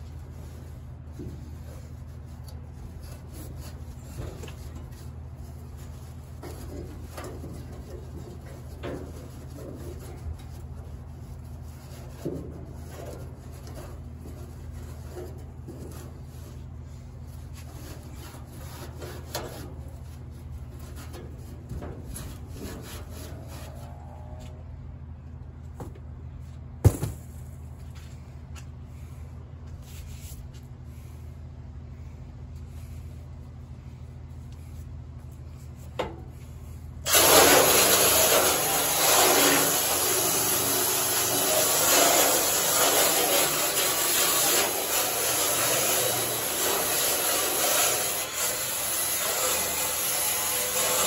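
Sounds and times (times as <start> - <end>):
pad scrubbing on steel: 0.0 - 24.4, 34.6 - 51.0
steady low hum: 0.0 - 40.0.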